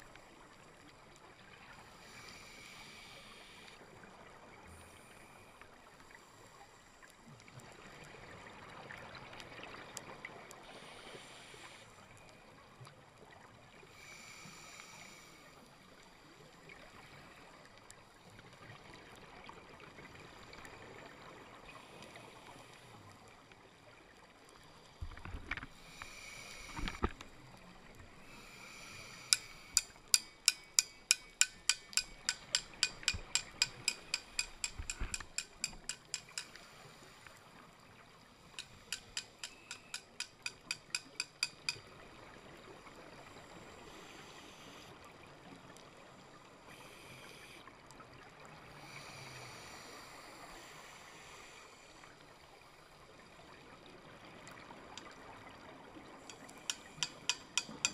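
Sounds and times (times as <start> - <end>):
faint underwater hiss: 0.0 - 57.9
sharp clicking taps: 29.3 - 36.5, 38.6 - 41.8, 56.3 - 57.9.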